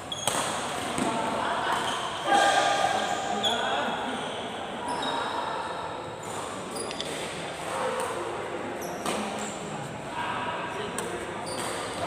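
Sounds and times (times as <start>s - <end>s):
shoes squeaking on court floor: 0.0s - 1.1s, 1.7s - 2.3s, 3.0s - 5.5s, 6.1s - 7.4s, 8.8s - 9.9s, 11.4s - 12.0s
racket hitting shuttlecock: 0.0s - 2.7s, 9.0s - 9.4s.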